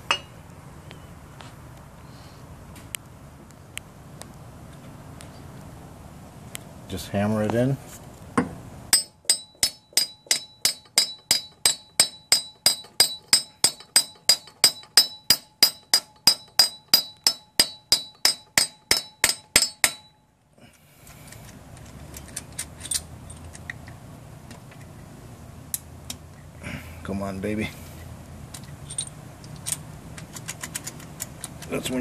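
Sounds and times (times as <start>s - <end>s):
hammer blows on metal: 8.9s - 20.2s.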